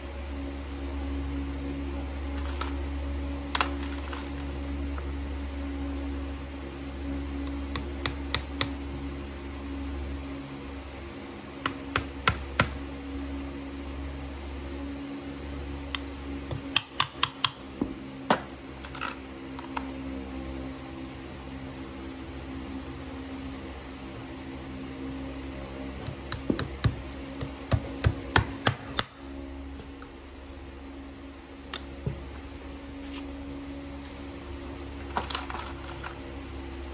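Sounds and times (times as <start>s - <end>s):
steady low hum: 0.0s - 36.9s
hammer tapping horseshoe nails: 7.4s - 8.8s, 11.6s - 12.8s, 16.5s - 17.6s, 26.0s - 29.1s.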